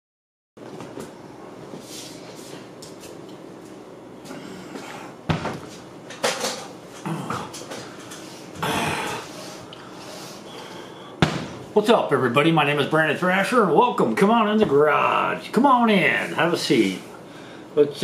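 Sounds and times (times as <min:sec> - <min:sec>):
chair knocks and thuds: 0:05.3 - 0:05.8, 0:11.2 - 0:11.6.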